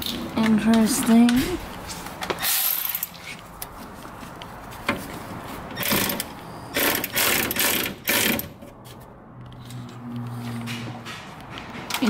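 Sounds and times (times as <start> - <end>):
ratchet wrench clicking: 2.4 - 3.2.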